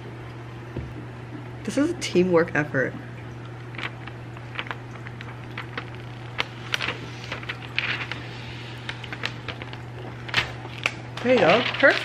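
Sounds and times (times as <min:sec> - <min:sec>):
steady low hum: 0:00.0 - 0:12.0
plastic film clicks and crinkles: 0:03.6 - 0:12.0
short plastic rustle: 0:03.8 - 0:12.0.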